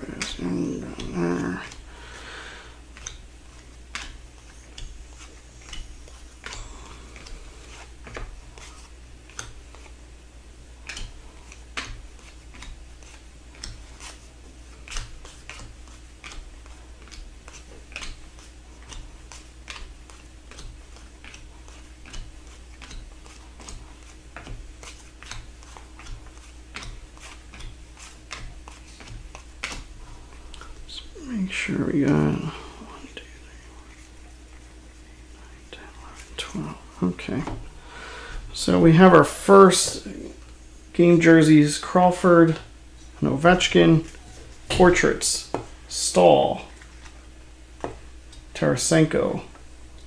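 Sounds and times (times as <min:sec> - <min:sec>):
steady low hum: 0:00.0 - 0:50.0
cards clicking and tapping: 0:02.9 - 0:10.0, 0:10.8 - 0:30.8.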